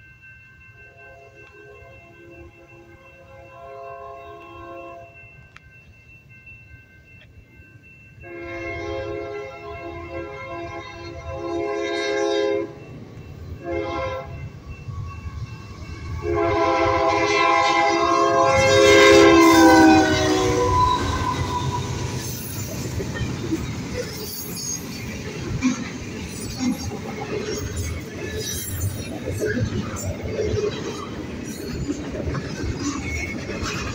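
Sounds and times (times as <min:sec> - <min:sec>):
locomotive air horn blasts: 0:03.2 - 0:05.2, 0:08.2 - 0:12.8, 0:13.6 - 0:14.4, 0:16.2 - 0:22.1.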